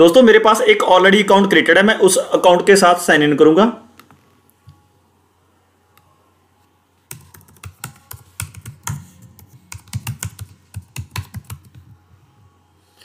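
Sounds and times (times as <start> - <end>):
typing on computer keyboard: 7.1 - 11.9.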